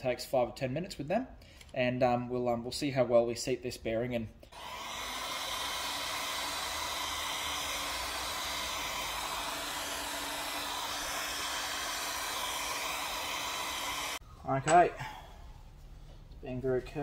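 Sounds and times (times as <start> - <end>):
heat gun blowing: 4.5 - 14.2.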